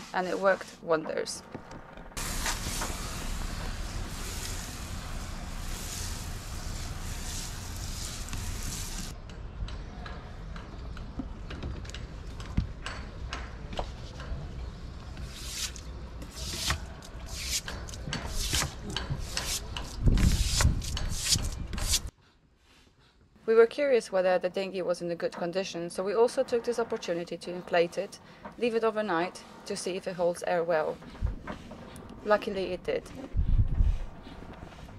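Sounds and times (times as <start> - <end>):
brush scrubbing wet wood: 2.2 - 9.1, 15.4 - 17.6, 18.3 - 22.1
hose nozzle spraying water: 2.2 - 9.1.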